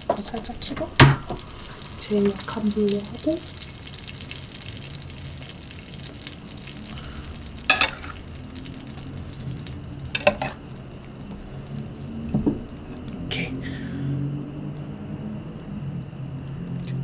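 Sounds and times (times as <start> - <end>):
butter sizzling in a pan: 0.0 - 13.2
metal spatula clattering on dishes: 7.7 - 8.2, 10.2 - 10.6.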